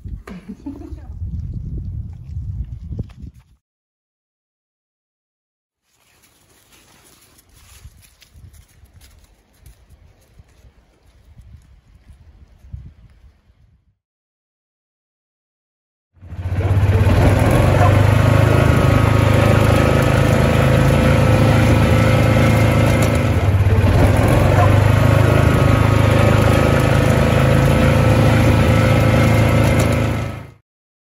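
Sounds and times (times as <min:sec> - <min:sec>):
motor droning: 0:16.2 - 0:30.6.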